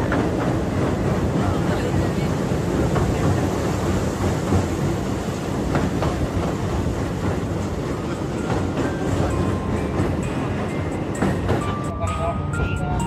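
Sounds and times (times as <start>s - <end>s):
train rumbling on track: 0.0s - 13.0s.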